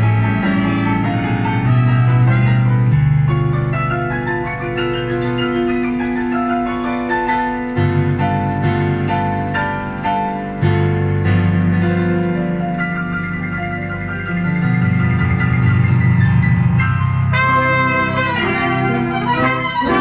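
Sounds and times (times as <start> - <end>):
brass band playing: 15.4 - 20.0.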